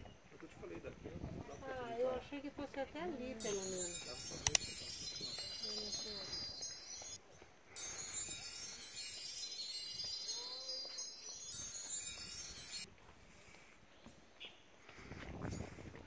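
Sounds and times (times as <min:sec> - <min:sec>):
faint outdoor ambience: 0:00.0 - 0:16.0
magic sparkle chime: 0:03.4 - 0:07.2, 0:07.8 - 0:12.9.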